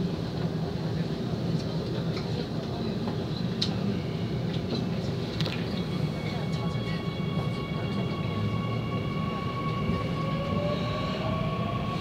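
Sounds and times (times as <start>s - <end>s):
subway car humming: 0.0s - 12.0s.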